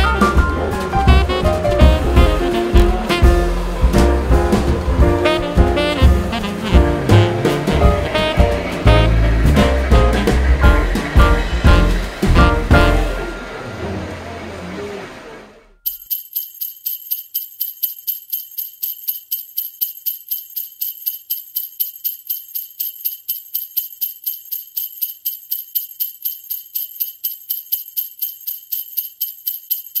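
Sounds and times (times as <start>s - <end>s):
jingle bells shaken: 0.0s - 13.4s, 15.8s - 30.0s.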